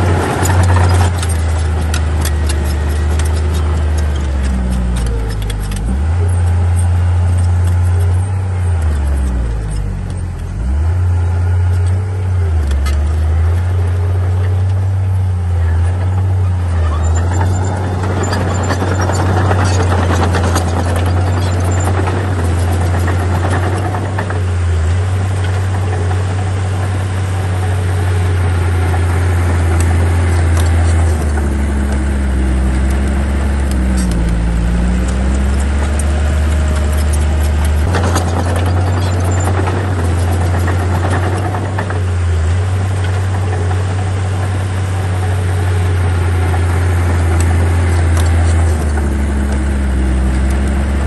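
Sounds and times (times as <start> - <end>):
clattering rattle: 0.0 - 10.7, 11.6 - 51.0
bulldozer diesel engine drone: 0.0 - 51.0.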